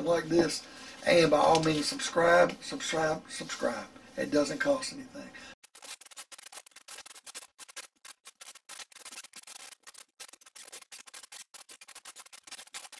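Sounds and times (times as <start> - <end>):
dense irregular crackling: 5.6 - 12.9.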